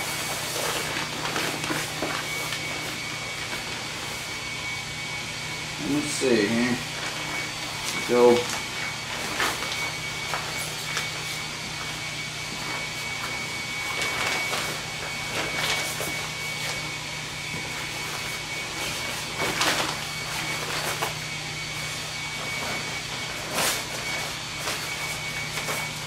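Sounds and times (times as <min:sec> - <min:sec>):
nylon fabric rustling and crinkling: 0:00.0 - 0:04.1, 0:12.5 - 0:16.8, 0:17.6 - 0:21.2.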